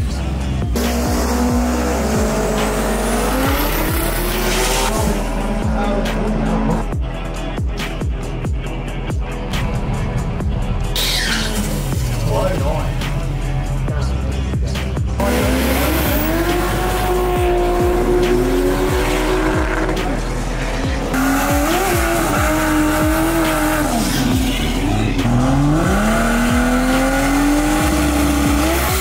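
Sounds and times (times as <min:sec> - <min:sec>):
background music with steady beat: 0:00.0 - 0:29.0
engine revving hard: 0:00.7 - 0:06.8, 0:15.2 - 0:29.0
tyre squeal: 0:11.0 - 0:11.7.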